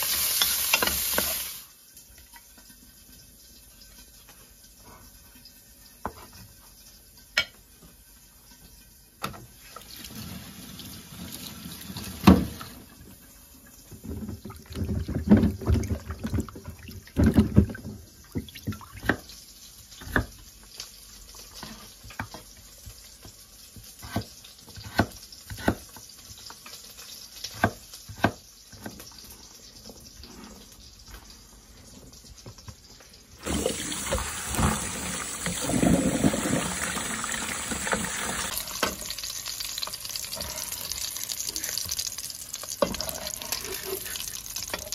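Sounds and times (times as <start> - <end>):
tap water running: 0.0 - 4.9, 9.2 - 22.3, 29.8 - 44.9.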